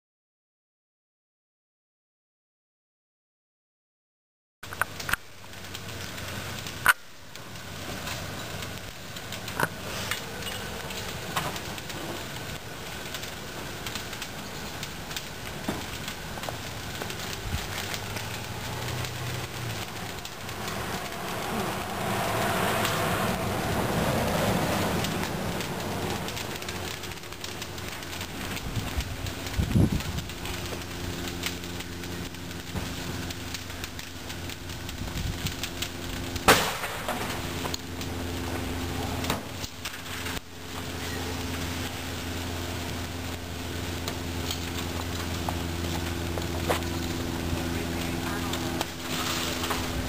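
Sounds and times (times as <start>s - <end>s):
fire rushing and crackling: 4.6s - 50.0s
tyre bursting bang: 36.5s - 37.3s.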